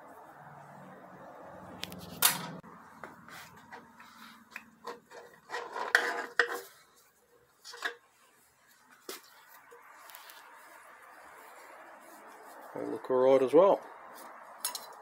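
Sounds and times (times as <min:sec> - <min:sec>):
metal plates clinking and scraping: 0:04.8 - 0:06.8, 0:07.6 - 0:08.1, 0:14.6 - 0:15.0.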